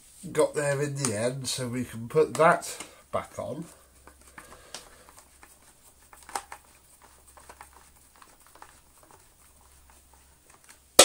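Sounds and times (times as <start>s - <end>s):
plastic parts clicking and scraping: 4.0s - 10.9s.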